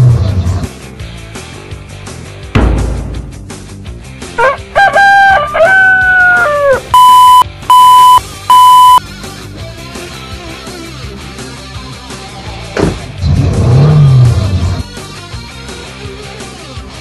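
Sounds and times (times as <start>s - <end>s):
background music: 0.0s - 7.0s
rooster crowing: 4.4s - 6.9s
alarm clock beeps: 7.0s - 9.0s.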